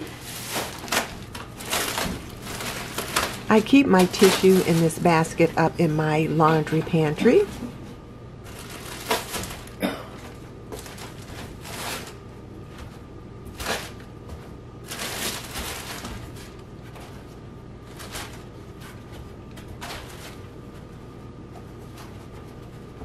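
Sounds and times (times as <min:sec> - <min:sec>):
tissue packaging rustling: 0:00.0 - 0:05.5, 0:08.4 - 0:09.8, 0:10.7 - 0:12.2, 0:14.8 - 0:16.6.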